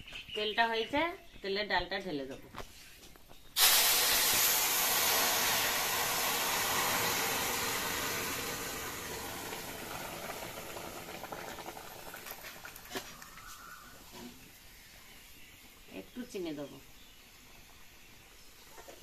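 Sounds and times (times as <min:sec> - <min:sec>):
hot oil steaming hiss: 0:03.6 - 0:15.8
light crackles: 0:09.4 - 0:14.6.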